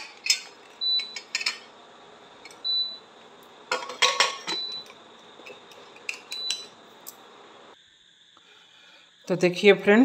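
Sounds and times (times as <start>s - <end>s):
metal lid clinks and clanks: 0.0s - 1.7s, 3.7s - 4.8s.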